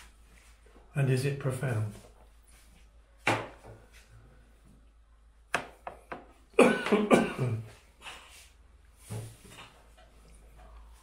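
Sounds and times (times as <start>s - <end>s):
man coughing: 6.6s - 7.8s.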